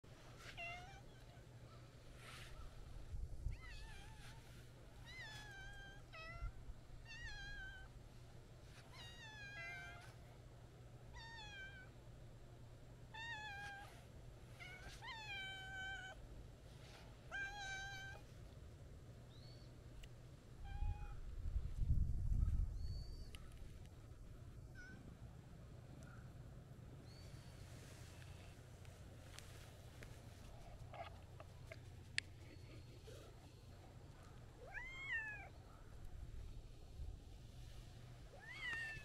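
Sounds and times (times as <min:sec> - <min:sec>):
cat meowing: 0:34.6 - 0:35.5.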